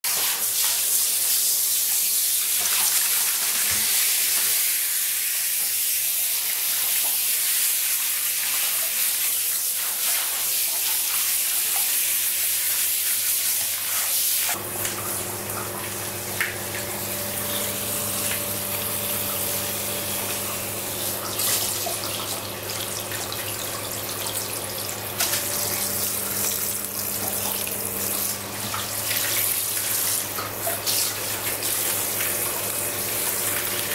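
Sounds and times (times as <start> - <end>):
shower water spraying: 0.1 - 33.9
steady low hum: 14.6 - 24.2, 25.0 - 29.5.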